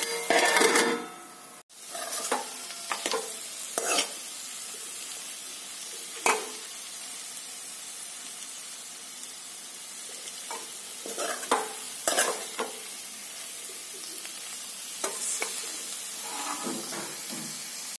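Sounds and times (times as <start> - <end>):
steel ladle scraping a pan: 0.0 - 4.2, 10.5 - 12.8, 15.0 - 17.4
vegetables sizzling in oil: 0.0 - 18.0.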